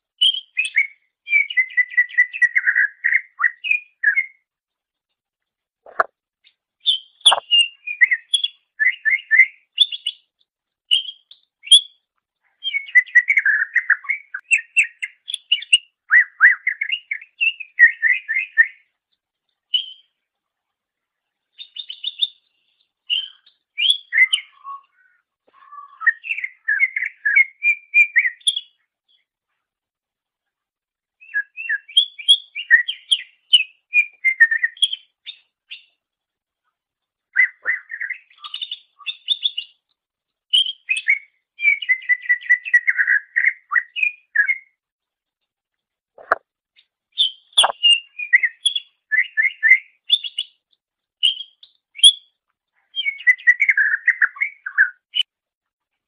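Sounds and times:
bird chirping and whistling: 0:06.8 - 0:10.2, 0:23.1 - 0:25.0, 0:31.2 - 0:35.4, 0:37.4 - 0:39.7, 0:40.6 - 0:44.6, 0:47.2 - 0:50.5, 0:51.2 - 0:52.2, 0:53.0 - 0:55.2.

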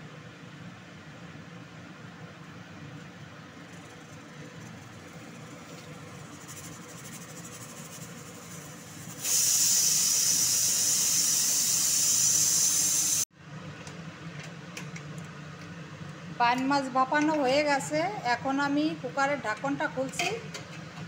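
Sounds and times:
pressure cooker whistle hissing: 0:09.1 - 0:13.2.

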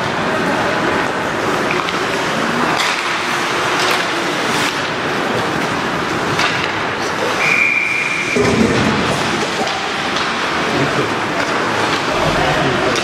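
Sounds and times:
hockey sticks and puck clacking: 0:00.0 - 0:12.1
referee's whistle: 0:07.4 - 0:08.4.

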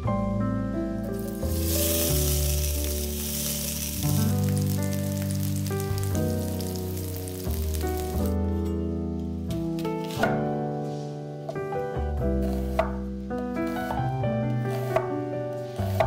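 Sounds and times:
background music: 0:00.0 - 0:16.0
onion sizzling in hot oil: 0:01.0 - 0:08.4.

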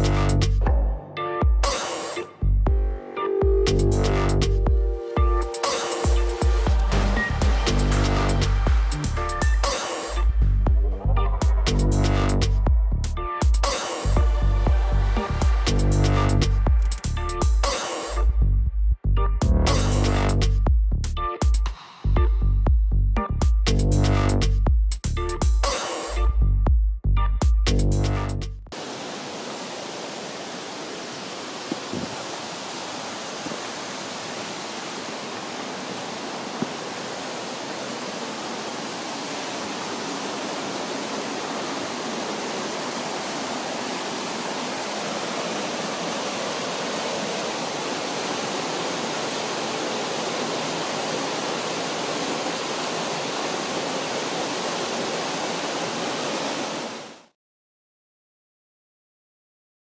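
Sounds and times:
waterfall rushing: 0:01.6 - 0:02.3, 0:04.7 - 0:10.3, 0:13.6 - 0:18.2, 0:28.8 - 0:57.3.

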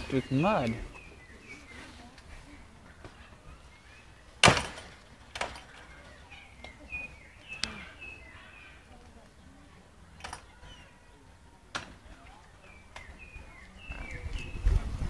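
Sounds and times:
small birds chirping: 0:00.0 - 0:15.0
sharp loud knock: 0:04.4 - 0:04.9.

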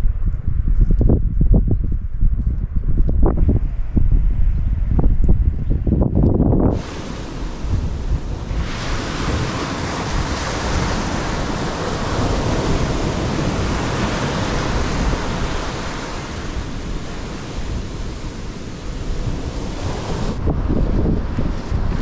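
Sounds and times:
wind rumbling on microphone: 0:00.0 - 0:22.0
small waves washing up beach: 0:06.7 - 0:20.4.

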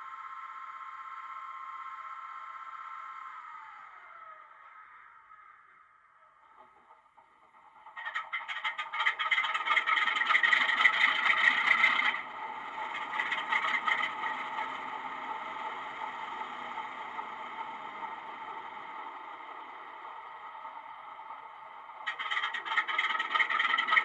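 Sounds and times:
diesel engine starting and idling: 0:06.5 - 0:24.0.

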